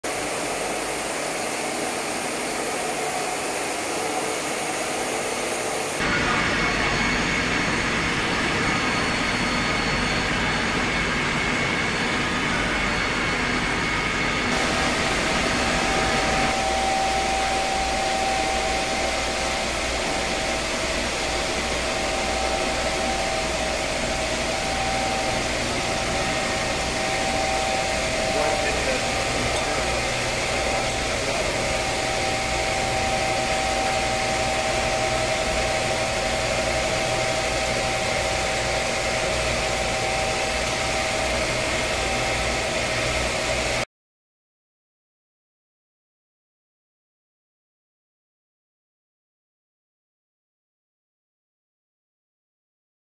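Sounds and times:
motors and pumps whirring: 0:00.0 - 0:43.9.

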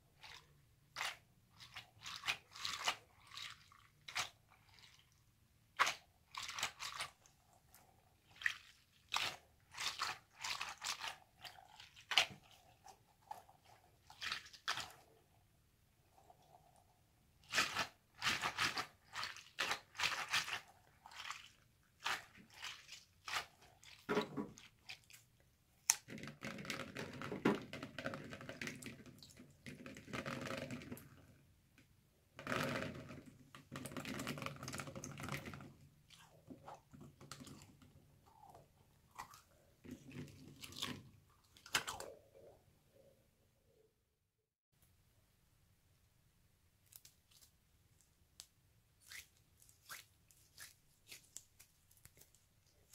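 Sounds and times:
wet squelching and crunching: 0:00.2 - 0:05.2, 0:05.8 - 0:07.2, 0:08.2 - 0:13.0, 0:17.5 - 0:26.1.

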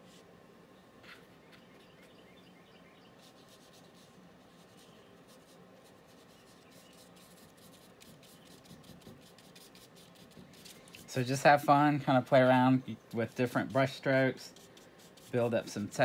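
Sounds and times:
paintbrush dabbing on paper: 0:03.2 - 0:16.0.

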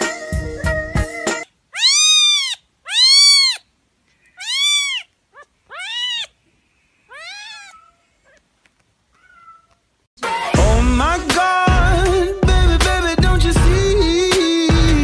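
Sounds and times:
pet meowing: 0:01.7 - 0:06.4, 0:07.0 - 0:08.5, 0:09.1 - 0:09.9.

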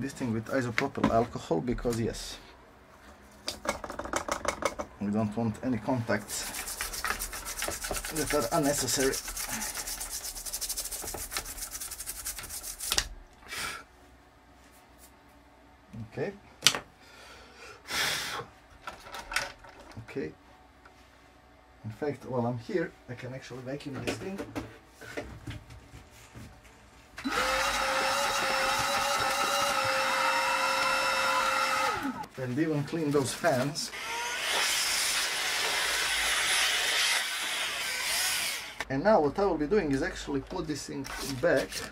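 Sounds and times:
small brush scrubbing circuit board: 0:06.3 - 0:13.0
vacuum cleaner running: 0:27.2 - 0:32.3.

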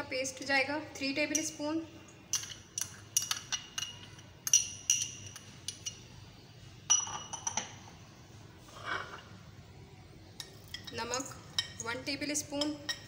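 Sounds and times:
metal spoon clinking against bowls: 0:01.2 - 0:01.6, 0:02.3 - 0:06.1, 0:06.9 - 0:07.8, 0:10.4 - 0:13.0.

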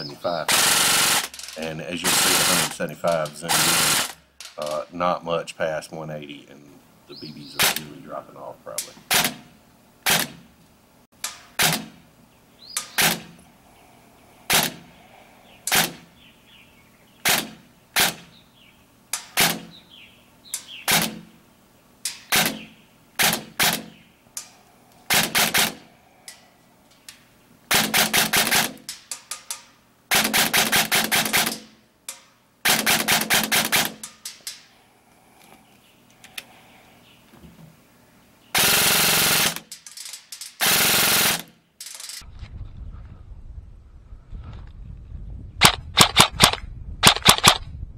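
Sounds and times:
airsoft gun full-auto bursts: 0:00.5 - 0:01.4, 0:02.0 - 0:02.8, 0:03.5 - 0:04.2, 0:09.1 - 0:10.4, 0:12.9 - 0:13.4, 0:14.5 - 0:14.8, 0:15.7 - 0:16.1, 0:17.2 - 0:18.3, 0:20.9 - 0:21.3, 0:22.3 - 0:24.0, 0:25.1 - 0:25.9, 0:27.7 - 0:28.9, 0:30.1 - 0:31.7, 0:32.6 - 0:34.1, 0:38.5 - 0:39.7, 0:40.6 - 0:41.5, 0:45.6 - 0:47.6
airsoft gun single shots: 0:09.1 - 0:10.4, 0:11.3 - 0:12.0, 0:17.2 - 0:18.3, 0:19.2 - 0:19.8, 0:20.8 - 0:21.3, 0:22.1 - 0:23.9, 0:45.6 - 0:47.6.

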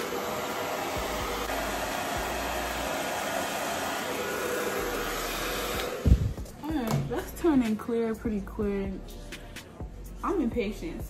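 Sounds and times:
hair dryer blowing: 0:00.0 - 0:07.7.

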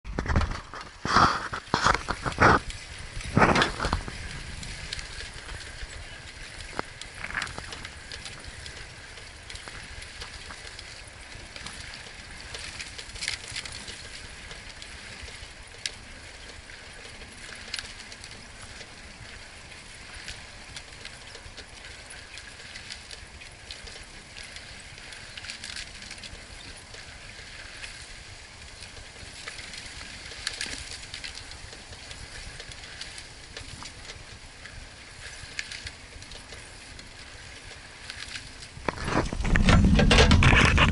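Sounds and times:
wind buffeting microphone: 0:00.0 - 0:17.5, 0:38.6 - 0:40.9
bicycle rolling on paved path: 0:00.0 - 0:40.9.

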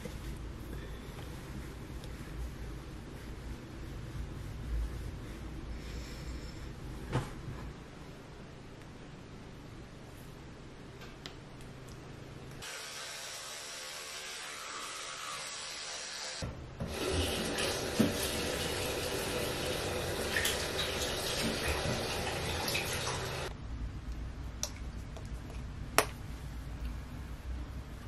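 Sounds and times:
electric toothbrush humming: 0:12.6 - 0:16.4
tap running into sink: 0:16.8 - 0:18.4.

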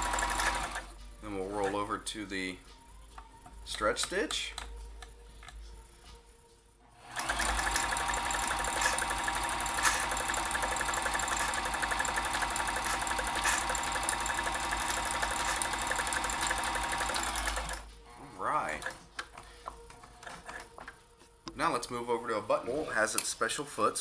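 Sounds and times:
sewing machine running: 0:00.0 - 0:00.9, 0:07.0 - 0:17.9.

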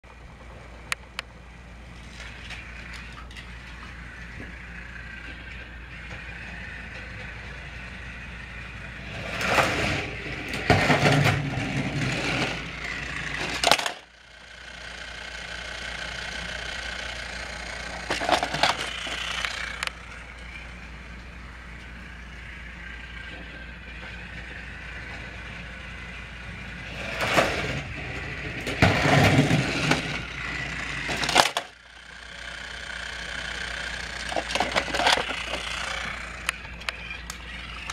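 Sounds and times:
toy train motor whine: 0:00.5 - 0:37.9
plastic rattling and clattering: 0:13.4 - 0:14.0, 0:18.1 - 0:19.6, 0:31.1 - 0:31.7, 0:34.2 - 0:35.8.

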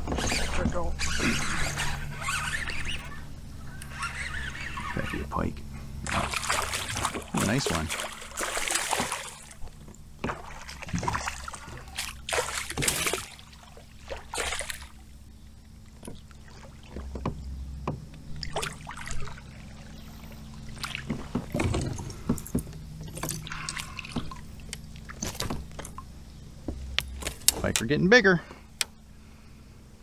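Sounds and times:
fish thrashing and splashing: 0:06.0 - 0:15.1, 0:18.4 - 0:22.4, 0:23.1 - 0:26.0
fishing gear knocking against boat: 0:20.9 - 0:27.8.

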